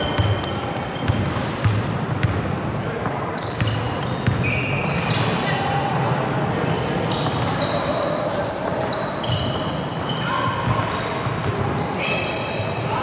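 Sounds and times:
basketball bouncing on floor: 0.0 - 2.8, 3.5 - 4.6
sneakers squeaking: 0.0 - 13.0.

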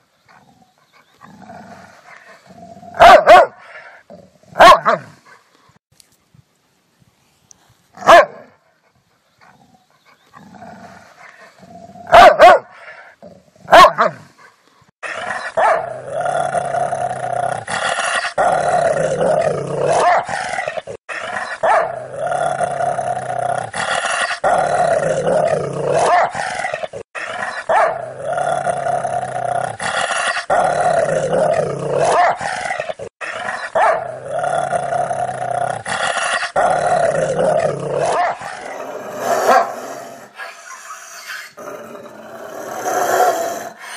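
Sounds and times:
dog barking: 3.0 - 3.6, 4.6 - 5.1, 8.0 - 8.6, 12.1 - 12.8, 13.7 - 14.2, 15.4 - 15.9, 19.9 - 20.3, 21.4 - 22.0, 26.0 - 26.4, 27.5 - 28.0, 32.0 - 32.5, 33.5 - 34.1, 38.0 - 38.5, 39.4 - 39.8
dog growling: 15.0 - 43.9.

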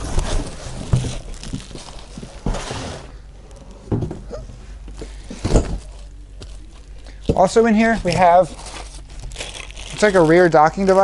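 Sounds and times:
plastic wrapping crinkling: 0.0 - 2.7, 5.8 - 11.0.

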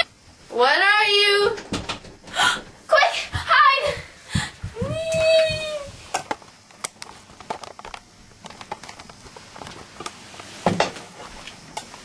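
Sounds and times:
rustling of people moving: 1.5 - 12.0.

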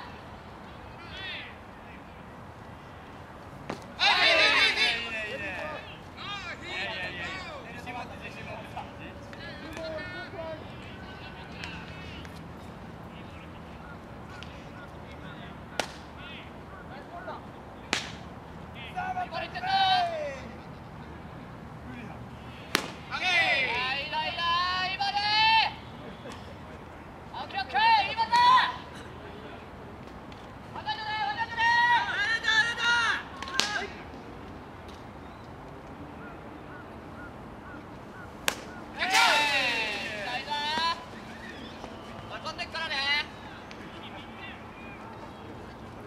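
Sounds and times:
faint calls of players: 0.0 - 26.7, 36.1 - 46.0
baseball smacking into mitt: 15.8 - 16.1, 17.9 - 18.2, 22.7 - 23.1, 38.4 - 39.4
sharp smack: 17.9 - 18.2, 22.7 - 23.0.

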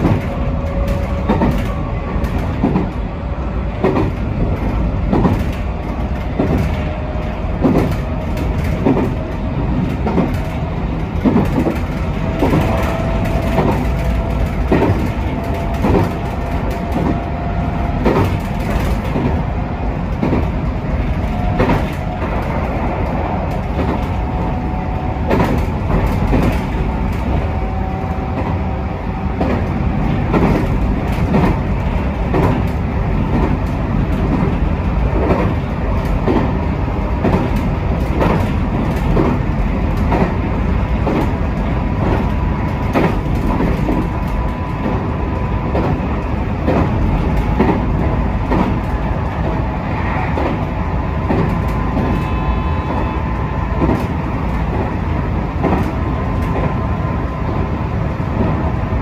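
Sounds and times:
clicks over rail joints: 0.0 - 49.7, 50.3 - 53.0, 55.6 - 56.8
train wheels rumbling on rails: 0.0 - 59.0.

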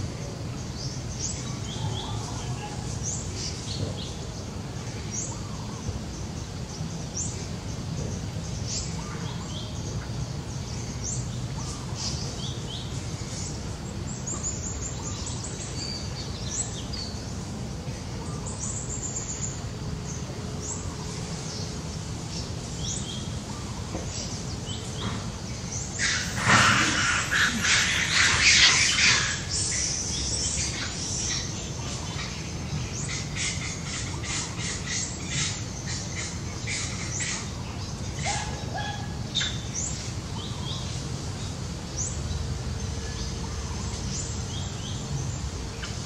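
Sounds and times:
low outdoor rumble: 0.0 - 46.0
harsh squawking calls: 25.8 - 32.4.

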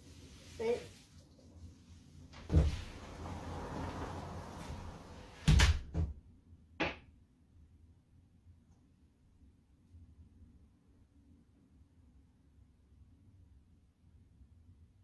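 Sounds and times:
door opening: 2.4 - 6.1
door shutting with thud: 2.5 - 6.2.

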